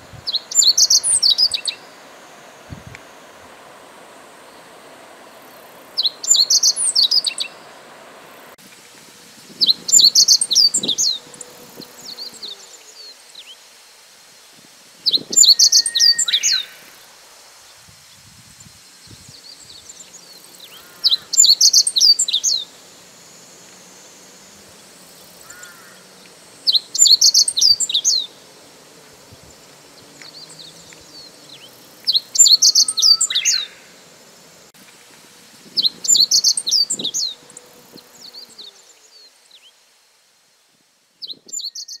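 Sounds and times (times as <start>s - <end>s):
faint bird calls: 19.4s - 22.8s, 25.4s - 28.4s, 30.0s - 34.0s.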